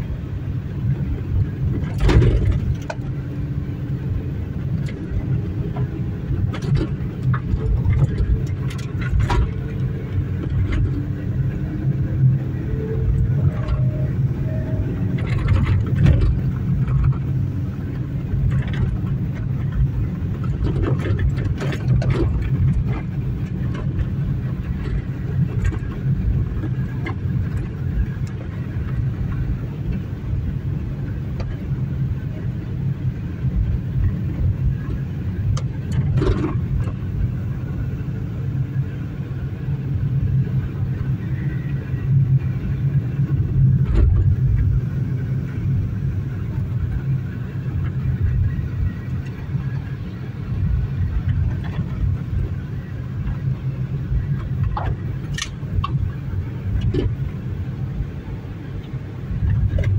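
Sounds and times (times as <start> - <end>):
engine and tyres rumbling: 0.0 - 59.9.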